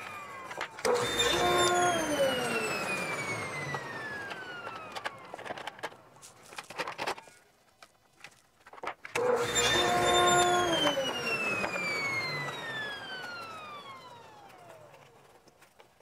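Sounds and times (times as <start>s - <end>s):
wood parts clicking and knocking: 0.0s - 1.4s, 3.6s - 9.3s, 14.4s - 16.0s
table saw winding down: 0.0s - 6.0s, 9.1s - 15.5s.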